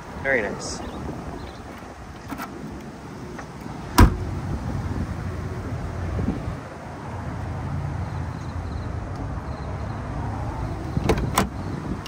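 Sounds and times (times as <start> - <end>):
car door latch clicking: 3.4 - 4.2, 11.0 - 11.6.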